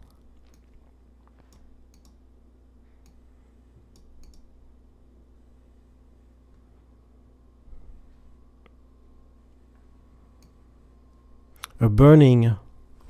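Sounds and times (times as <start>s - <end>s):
low steady hum: 0.0s - 13.0s
computer mouse clicks: 1.4s - 2.2s, 3.9s - 4.5s.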